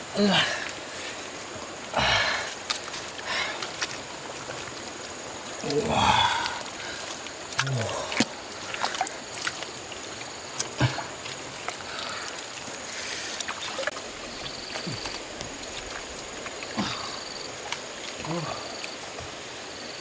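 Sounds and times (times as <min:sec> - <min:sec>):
wet mud squelches and splashes: 0:00.3 - 0:20.0.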